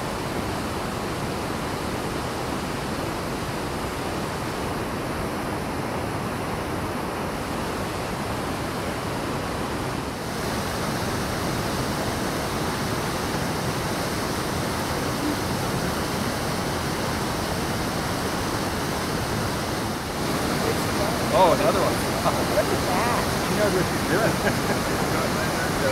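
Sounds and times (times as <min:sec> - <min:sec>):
water rushing over rocks: 0:00.0 - 0:25.9.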